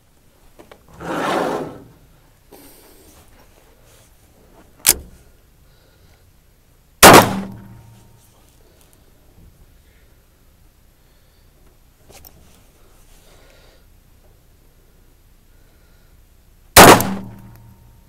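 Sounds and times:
gunshots: 0:07.0 - 0:07.8, 0:16.8 - 0:17.5.

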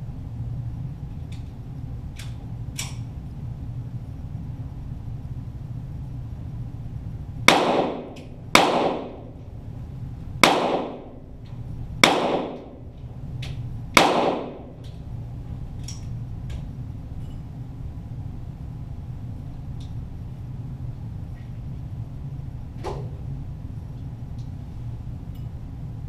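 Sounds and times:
steady low hum: 0:00.0 - 0:26.0
pistol shots echoing: 0:07.5 - 0:09.4, 0:10.4 - 0:11.3, 0:12.0 - 0:12.9, 0:14.0 - 0:14.8.

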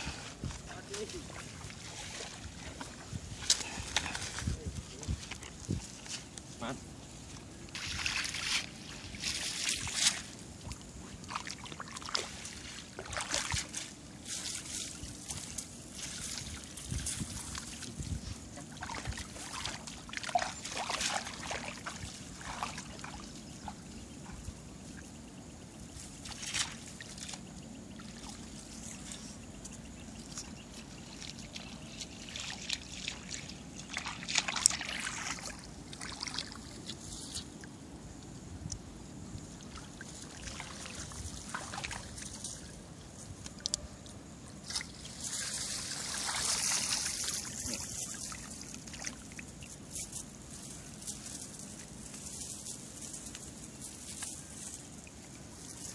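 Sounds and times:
water trickling from a net: 0:00.4 - 0:06.0, 0:07.2 - 0:23.9, 0:30.1 - 0:37.3, 0:39.6 - 0:42.8, 0:44.6 - 0:55.9.

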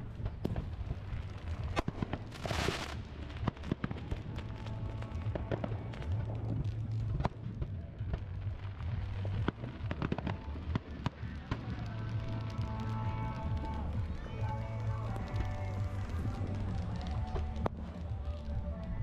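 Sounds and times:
firework hiss: 0:00.0 - 0:07.6
fireworks bangs and crackles: 0:00.0 - 0:19.0
low rumble: 0:00.0 - 0:19.0.

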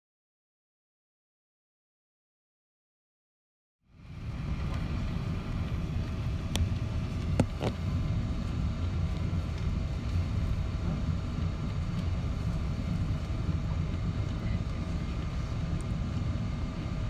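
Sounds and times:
aircraft cabin rumble: 0:03.9 - 0:17.0.

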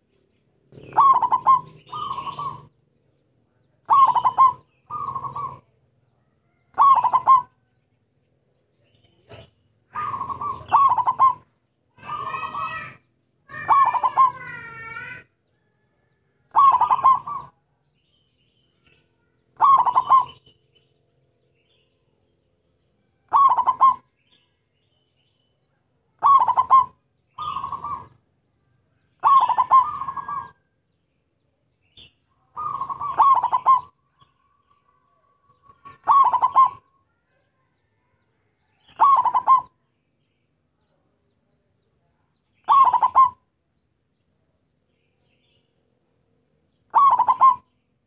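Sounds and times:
dove cooing: 0:00.7 - 0:02.8, 0:03.8 - 0:05.8, 0:06.6 - 0:07.7, 0:09.2 - 0:15.3, 0:16.5 - 0:17.6, 0:19.6 - 0:20.5, 0:23.3 - 0:24.3, 0:26.2 - 0:28.2, 0:29.2 - 0:30.6, 0:32.4 - 0:37.9, 0:38.8 - 0:39.8, 0:42.6 - 0:43.5, 0:46.9 - 0:47.8.

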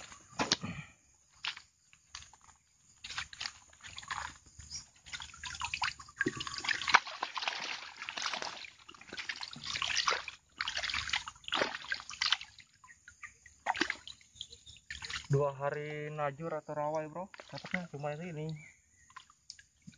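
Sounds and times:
water sloshing and splashing: 0:01.3 - 0:15.6, 0:16.9 - 0:19.9
fish thrashing in water: 0:03.0 - 0:15.3, 0:17.3 - 0:19.9.

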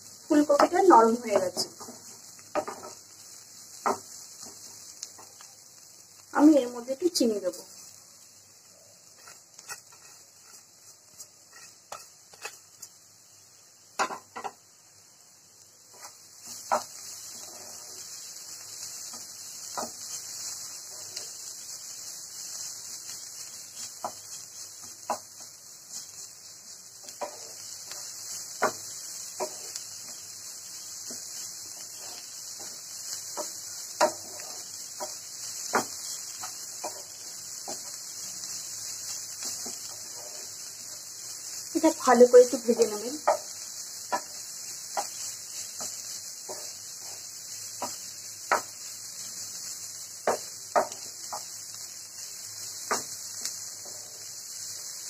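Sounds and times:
frying hiss: 0:00.0 - 0:55.0
spatula scraping frying pan: 0:09.0 - 0:12.9, 0:15.9 - 0:51.7, 0:52.6 - 0:55.0
spatula knocking against pan: 0:50.3 - 0:51.5.

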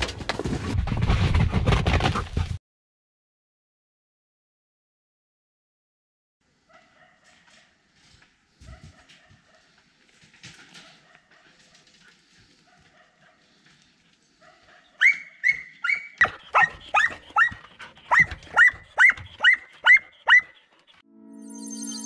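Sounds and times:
dog barking: 0:06.6 - 0:07.8, 0:08.6 - 0:09.8, 0:10.7 - 0:11.9, 0:12.5 - 0:13.6, 0:14.3 - 0:20.6.

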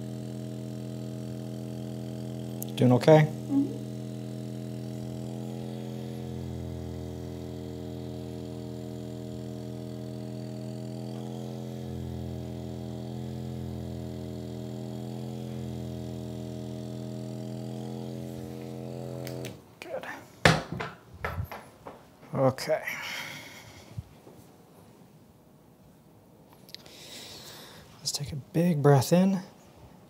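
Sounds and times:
massage gun humming: 0:00.0 - 0:19.7.

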